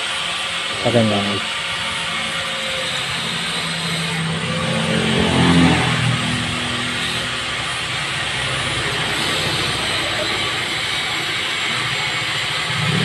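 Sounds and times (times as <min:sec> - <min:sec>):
motor vehicle engine revving: 0:00.0 - 0:13.0
steady background noise: 0:00.0 - 0:13.0.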